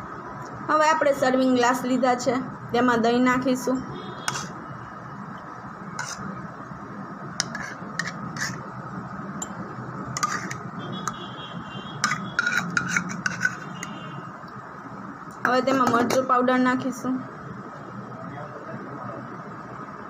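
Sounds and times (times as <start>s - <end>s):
spoon scraping plastic tub: 4.3s - 4.6s, 6.0s - 6.3s, 7.4s - 8.6s, 10.2s - 11.2s, 12.0s - 14.0s.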